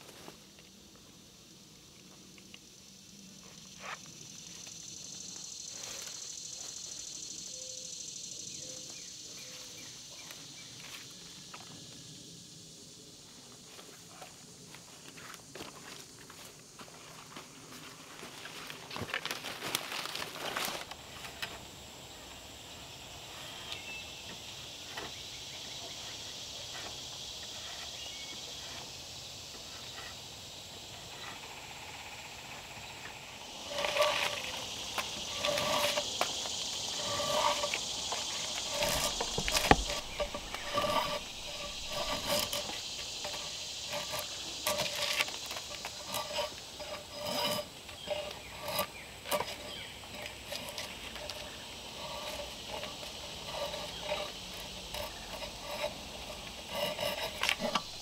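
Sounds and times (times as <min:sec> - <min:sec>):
insect buzz: 0:00.0 - 0:58.0
drawknife scraping bark: 0:33.5 - 0:58.0.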